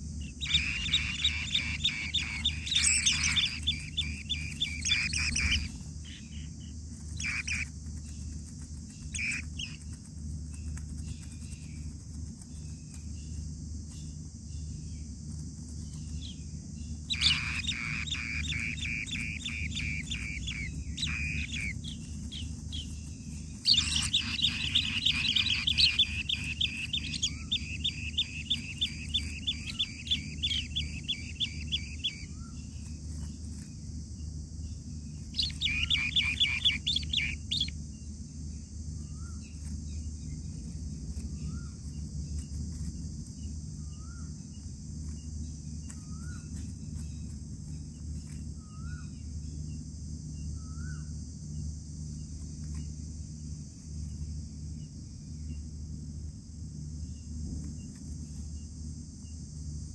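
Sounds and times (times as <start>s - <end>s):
faint rising peeps: 0.0s - 12.0s, 15.9s - 34.0s, 35.0s - 38.0s
high insect drone: 0.0s - 59.9s
nestlings chirping in trills: 0.0s - 59.9s.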